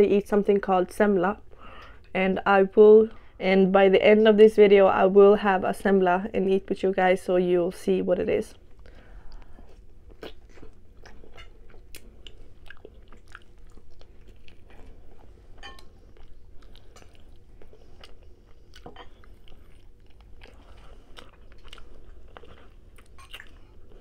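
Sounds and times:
person chewing chicken: 0:08.8 - 0:24.0.

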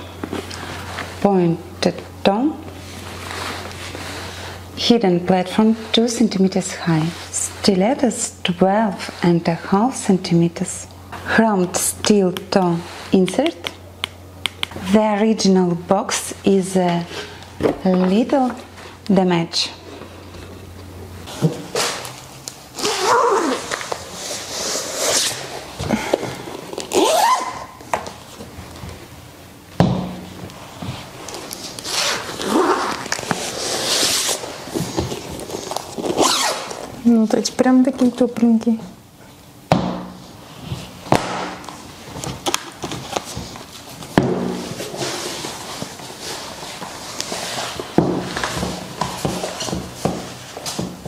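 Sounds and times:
packing material rustling: 0:30.6 - 0:37.0.

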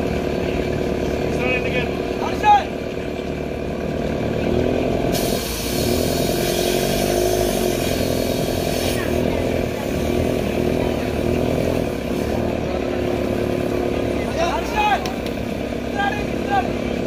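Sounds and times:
truck engine revving: 0:00.0 - 0:17.0.

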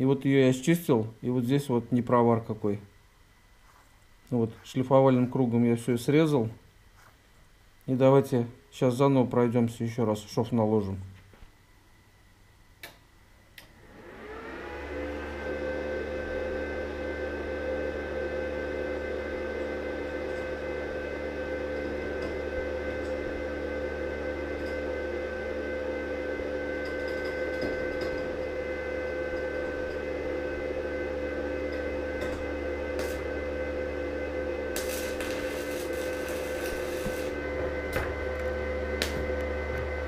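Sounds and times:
machine hum: 0:00.0 - 0:40.0
arc welding hiss: 0:33.0 - 0:33.3, 0:34.8 - 0:37.4.

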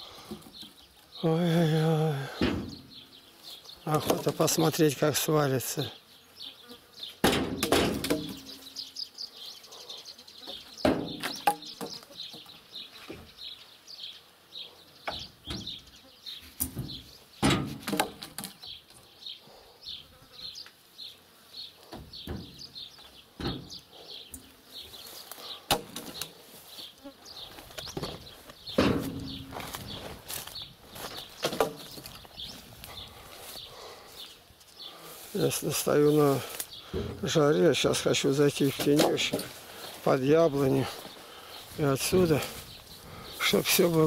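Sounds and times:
wooden poles clattering onto pile: 0:07.2 - 0:08.5, 0:10.8 - 0:12.5, 0:16.6 - 0:18.7, 0:27.7 - 0:32.3, 0:38.6 - 0:40.0.

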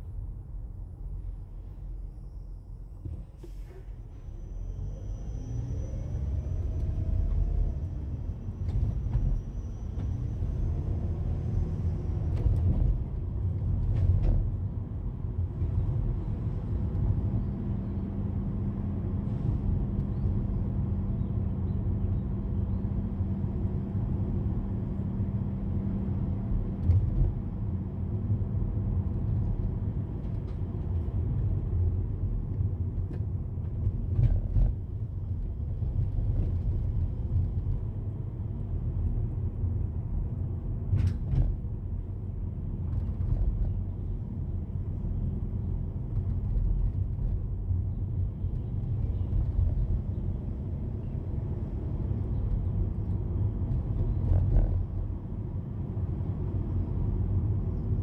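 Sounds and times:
car road and engine noise: 0:00.0 - 0:58.0.

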